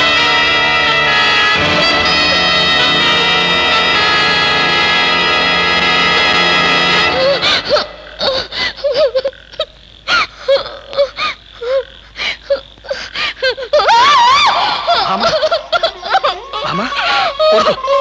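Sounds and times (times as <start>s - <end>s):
high-pitched voice crying: 7.2s - 11.9s, 12.5s - 18.0s.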